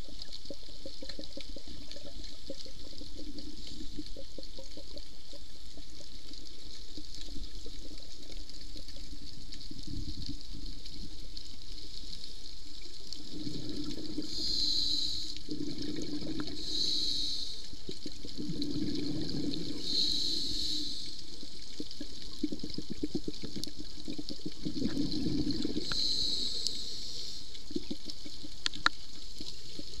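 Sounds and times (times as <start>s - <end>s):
steady underwater hiss: 0.0s - 30.0s
diver exhaling bubbles: 13.3s - 14.6s, 15.5s - 17.0s, 18.3s - 20.7s, 24.5s - 26.8s
regulator hissing inhale: 13.5s - 15.5s, 16.4s - 17.8s, 19.4s - 21.4s, 25.6s - 27.6s.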